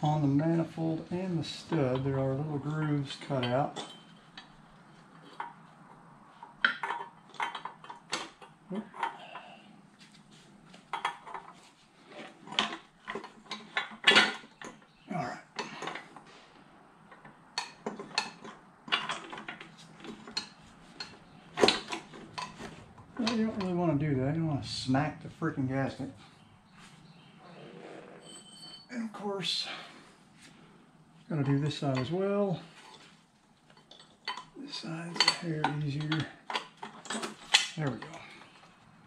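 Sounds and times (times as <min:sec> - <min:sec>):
metal clinks and taps: 0:03.2 - 0:09.3, 0:28.2 - 0:28.9, 0:32.8 - 0:38.2.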